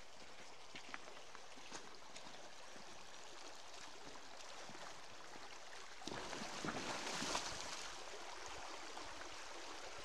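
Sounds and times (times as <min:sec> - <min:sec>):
stream rushing over gravel: 0:06.1 - 0:10.0.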